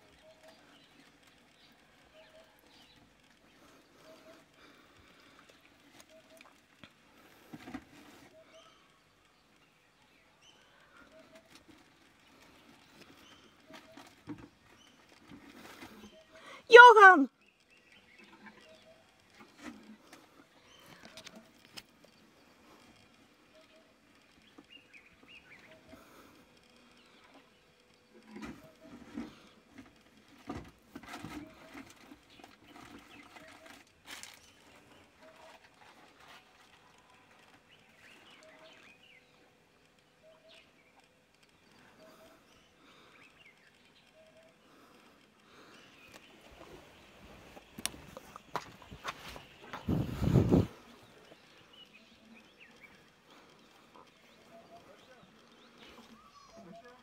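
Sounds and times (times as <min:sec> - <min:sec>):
birds calling faintly: 0:00.0 - 0:57.0
birds giving high calls: 0:45.7 - 0:57.0.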